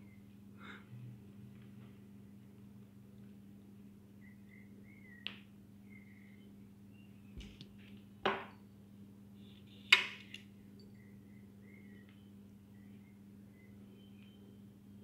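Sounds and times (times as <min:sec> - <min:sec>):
faint low hum: 0:00.0 - 0:15.0
faint high chirps: 0:10.5 - 0:15.0.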